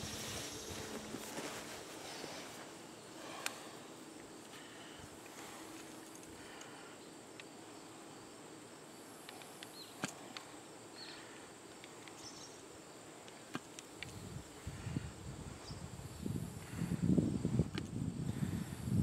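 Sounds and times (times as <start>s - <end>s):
high insect drone: 0.0s - 19.0s.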